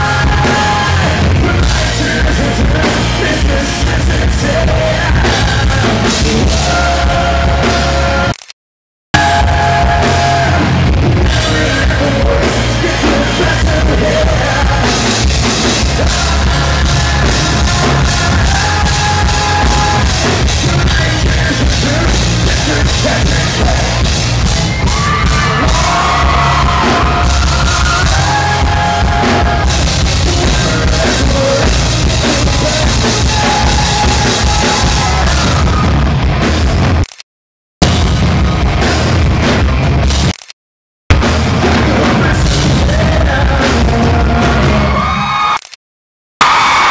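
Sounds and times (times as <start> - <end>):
drums: 0.0 - 8.3, 9.2 - 37.1, 37.8 - 40.4, 41.1 - 45.6, 46.4 - 46.9
man singing lead vocals: 0.0 - 8.3, 9.2 - 35.9, 41.6 - 45.5
bass: 0.0 - 8.5, 9.1 - 37.2, 37.8 - 40.5, 41.1 - 45.7, 46.4 - 46.9.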